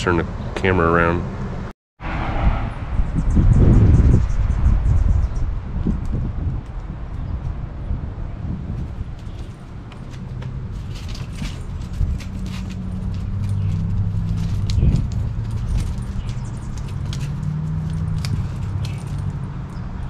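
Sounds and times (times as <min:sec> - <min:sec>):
low drone: 0:01.2 - 0:03.9
dog collar tags jingling: 0:10.8 - 0:19.9.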